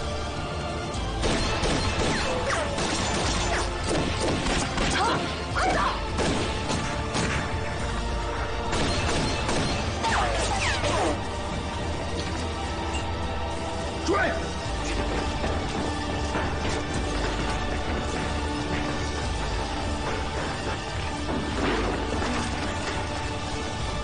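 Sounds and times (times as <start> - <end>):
background music: 0.0 - 24.0
gunshots: 1.1 - 7.8, 8.6 - 11.2.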